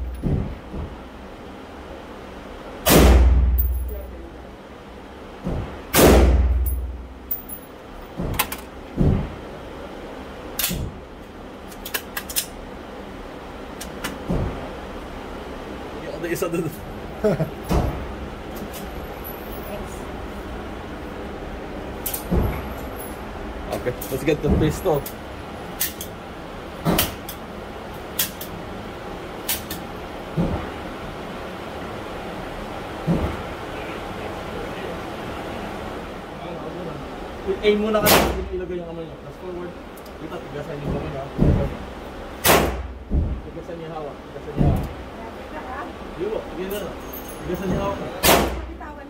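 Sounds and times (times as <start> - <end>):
steady background hiss: 0.0 - 49.0
rifle shot: 2.8 - 3.5, 5.9 - 6.6, 42.4 - 42.9, 48.2 - 48.6.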